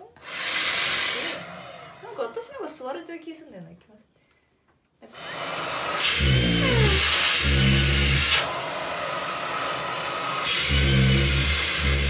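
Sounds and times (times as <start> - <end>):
handheld vacuum whirring: 0.2 - 2.3, 5.1 - 12.0.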